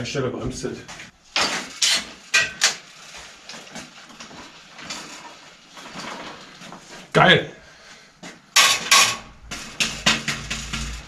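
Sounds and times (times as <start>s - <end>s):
bicycle metallic clanks and rattles: 1.3s - 7.0s, 8.5s - 11.0s.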